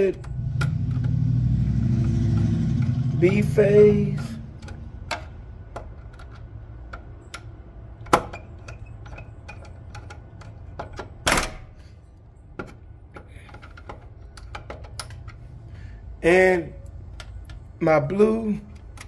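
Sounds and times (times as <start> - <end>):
small metal clicks and ticks: 0.0 - 11.2, 18.5 - 19.0.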